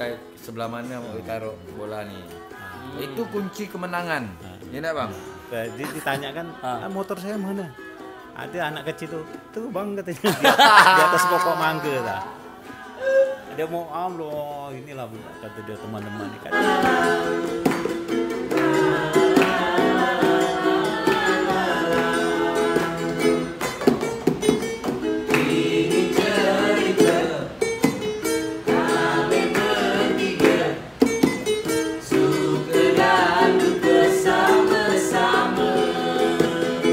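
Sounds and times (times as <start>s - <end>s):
plucked string instruments: 0.0s - 36.9s
person singing: 1.6s - 13.8s, 14.8s - 17.7s, 18.4s - 23.6s.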